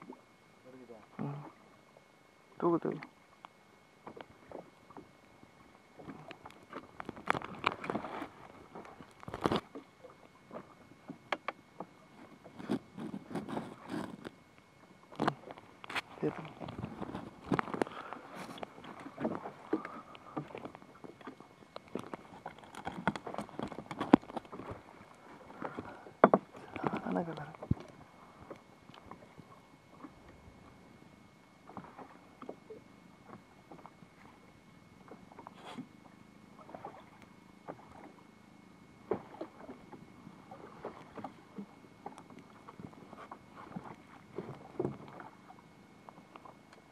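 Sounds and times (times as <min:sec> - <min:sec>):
water slapping boat hull: 0:02.8 - 0:46.9.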